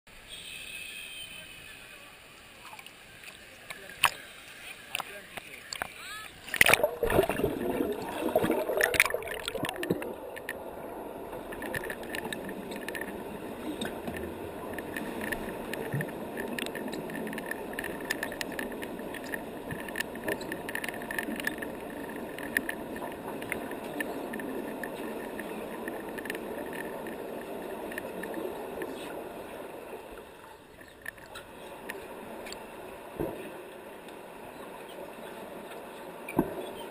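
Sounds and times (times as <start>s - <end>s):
muffled underwater noise: 1.0s - 36.9s
water splashing: 2.5s - 32.7s
faint clicks: 2.6s - 10.6s, 11.3s - 29.2s, 30.1s - 33.4s.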